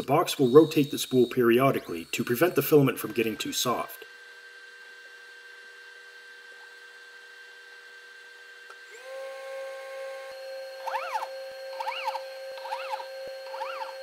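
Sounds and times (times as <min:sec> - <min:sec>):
printer electric hum and whine: 0:00.0 - 0:14.0
short rising and falling squeaks: 0:10.8 - 0:14.0.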